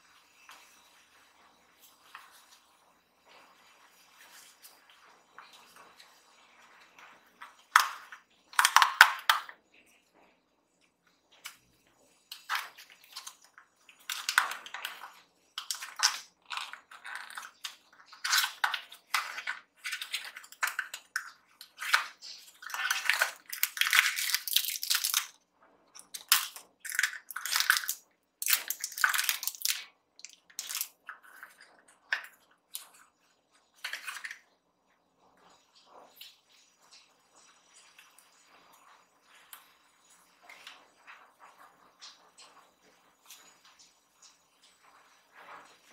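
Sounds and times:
cardboard and wrappers crinkling: 21.6 - 25.4.

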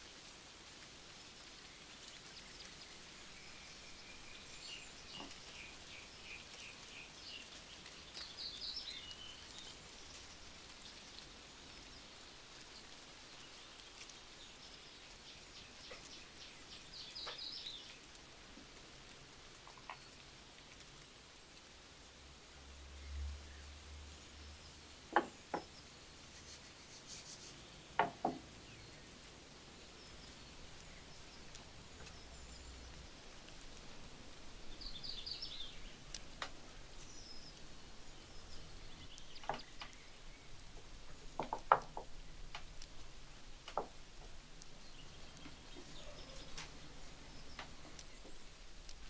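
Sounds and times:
bird chirping: 1.6 - 12.2, 12.8 - 18.0, 34.6 - 42.4, 44.7 - 49.0.

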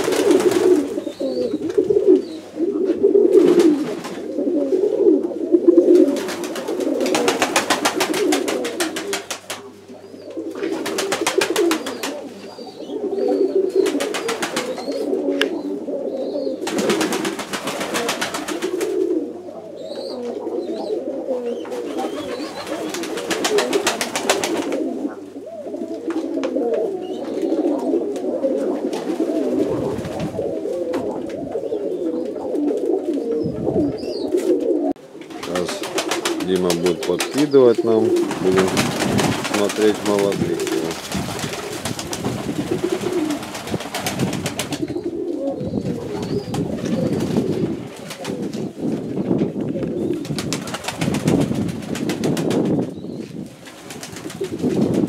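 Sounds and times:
wings flapping: 0.0 - 2.0, 3.4 - 4.2, 5.9 - 9.8, 10.5 - 12.4, 13.7 - 15.2, 16.6 - 19.1, 21.6 - 25.1, 27.3 - 31.6, 35.2 - 49.1, 50.0 - 52.9, 53.5 - 55.0
pigeons cooing: 0.0 - 55.0.

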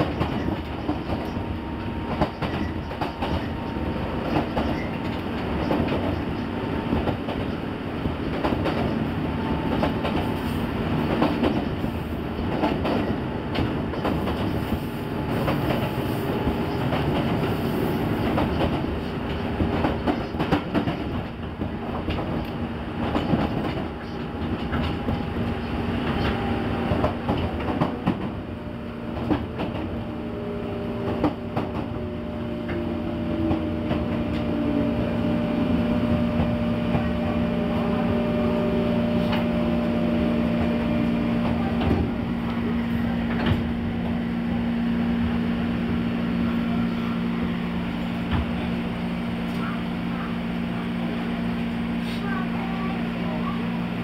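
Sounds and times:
rail-joint clicks: 0.0 - 28.4, 43.2 - 44.2
train low hum: 0.0 - 54.0
train motor whine: 22.4 - 51.7.

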